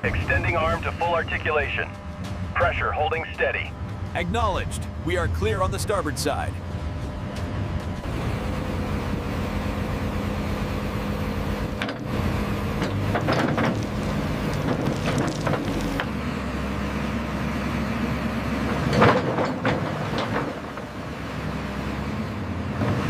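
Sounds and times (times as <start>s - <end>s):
excavator engine running: 0.0s - 23.0s
steel tracks clanking: 18.8s - 21.0s.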